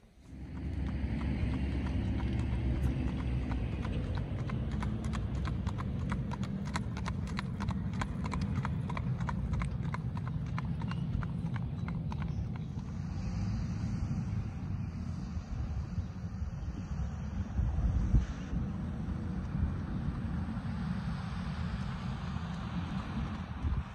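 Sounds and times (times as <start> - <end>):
horse hooves clip-clopping: 0.0 - 13.2, 18.8 - 23.9
wind rumble on microphone: 0.0 - 23.9.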